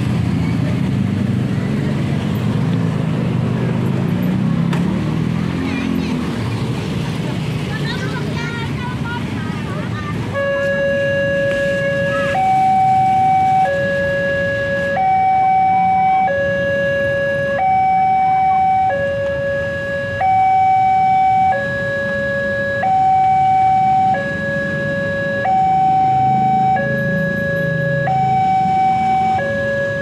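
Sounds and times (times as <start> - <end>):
level crossing two-tone alarm: 10.4 - 30.0.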